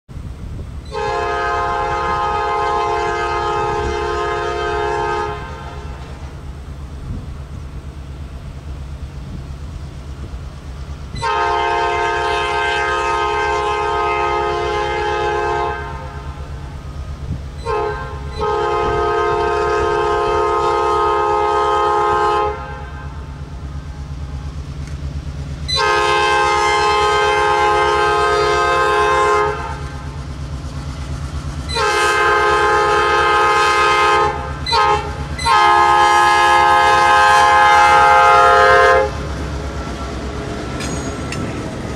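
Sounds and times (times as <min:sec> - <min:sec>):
diesel engine rumbling: 0:00.1 - 0:41.9
locomotive air horn blasts: 0:00.9 - 0:06.3, 0:11.2 - 0:16.6, 0:17.6 - 0:23.3, 0:25.7 - 0:30.1, 0:31.7 - 0:39.3.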